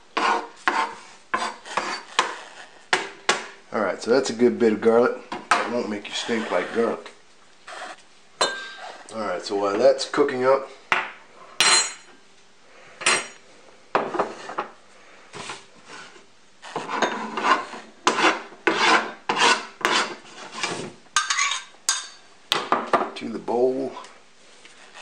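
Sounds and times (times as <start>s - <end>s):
knife scraping on cutting board: 0.2s - 2.8s, 6.0s - 7.0s, 15.4s - 21.6s.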